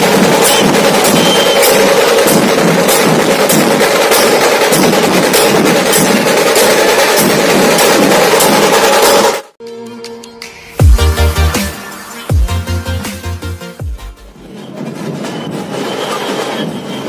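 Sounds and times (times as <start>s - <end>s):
dhol drums: 0.0s - 9.4s
snare drums: 0.0s - 9.5s
electronic music: 9.6s - 14.5s.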